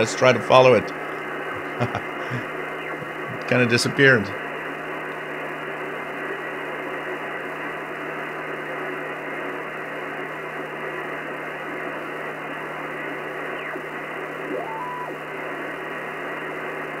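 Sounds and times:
radio static: 0:01.2 - 0:04.7, 0:10.9 - 0:15.7
low hum: 0:13.1 - 0:15.6
rising whistle: 0:13.6 - 0:13.8, 0:14.4 - 0:15.3.

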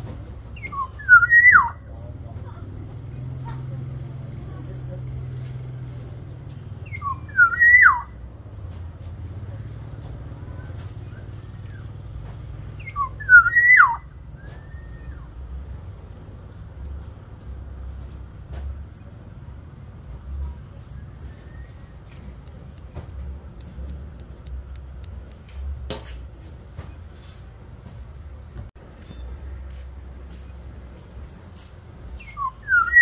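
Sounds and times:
bird singing fluty whistle: 0:00.6 - 0:01.8, 0:06.8 - 0:08.2, 0:12.8 - 0:15.4, 0:21.0 - 0:22.0, 0:32.2 - 0:33.0.

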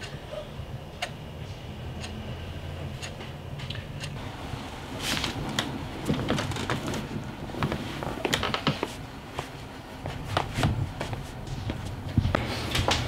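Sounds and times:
steady low hum: 0:00.0 - 0:13.0
clothing rustling: 0:04.8 - 0:12.4
soft footsteps on floor: 0:06.1 - 0:13.0.

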